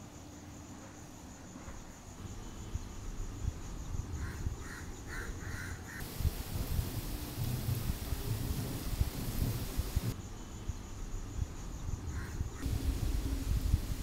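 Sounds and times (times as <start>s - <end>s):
high drone of insects: 0.0s - 14.0s
crow cawing: 4.2s - 6.0s.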